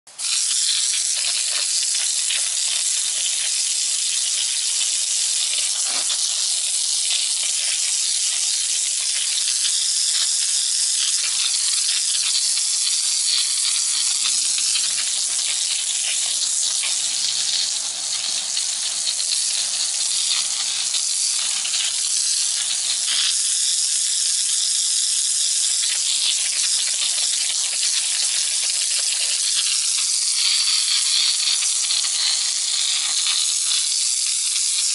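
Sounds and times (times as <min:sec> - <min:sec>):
water jet spraying against wall: 0:00.1 - 0:34.9.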